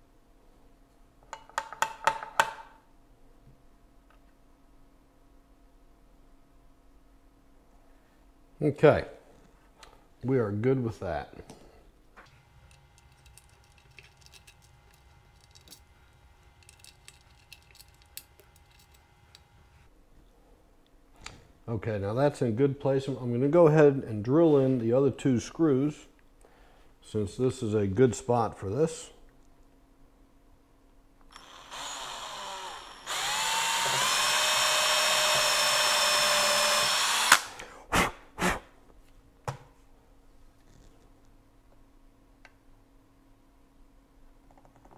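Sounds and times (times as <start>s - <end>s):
screwdriver clicks and metallic taps: 16.5s - 19.5s
drill stopping click: 31.3s - 37.5s
cordless drill whining: 31.3s - 37.6s
drill trigger bursts: 31.3s - 37.6s.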